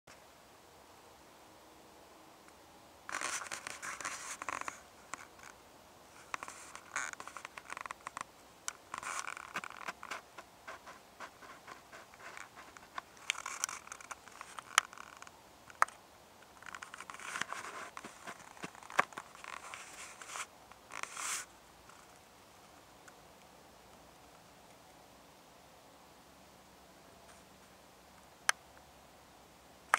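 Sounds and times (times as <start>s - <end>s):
scratching and rustling: 3.1s - 22.9s.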